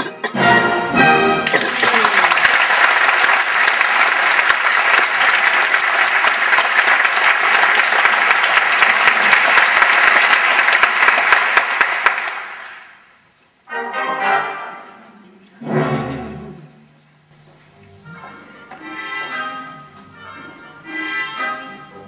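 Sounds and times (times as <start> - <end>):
orchestra playing: 0.0 - 2.3, 13.7 - 16.9, 17.8 - 22.0
audience applauding: 1.4 - 13.0.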